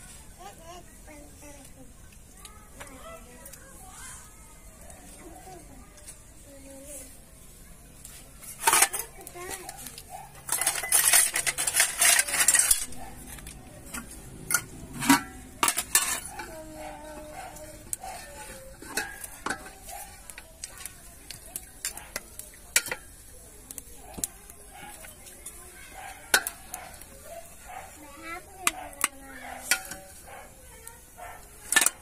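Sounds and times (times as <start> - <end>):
metal ladle scraping a pot: 8.1 - 30.3, 31.4 - 32.0
ladle clinking on steel bowls: 8.4 - 27.9, 28.5 - 30.3, 31.4 - 32.0.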